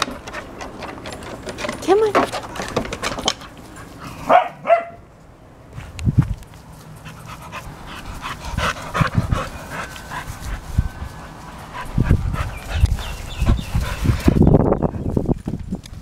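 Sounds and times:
dog panting: 0:06.9 - 0:15.2.

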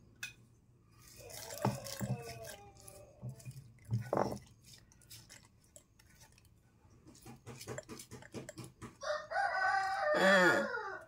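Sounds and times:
stone knocking against plastic jar: 0:03.2 - 0:04.5, 0:07.0 - 0:09.0.

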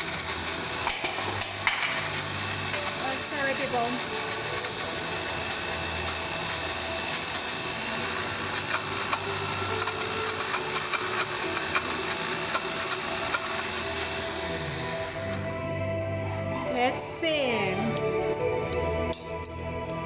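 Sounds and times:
blender grinding nuts: 0:00.0 - 0:15.6.

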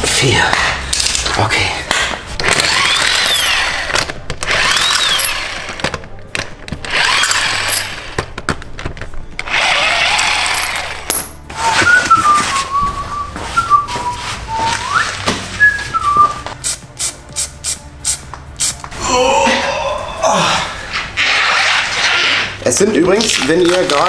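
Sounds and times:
impact wrench whining: 0:02.4 - 0:08.4, 0:09.4 - 0:12.1
person whistling a tune: 0:11.6 - 0:16.5.

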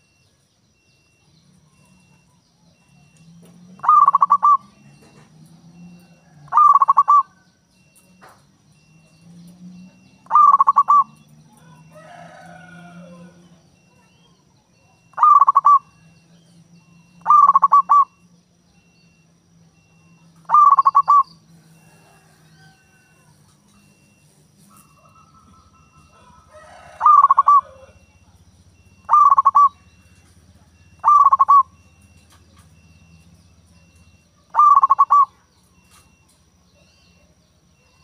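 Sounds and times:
dove cooing in trilled notes: 0:03.7 - 0:07.5, 0:09.9 - 0:13.9, 0:15.0 - 0:16.2, 0:16.9 - 0:18.2, 0:20.5 - 0:24.1, 0:24.7 - 0:33.2, 0:34.3 - 0:35.4.

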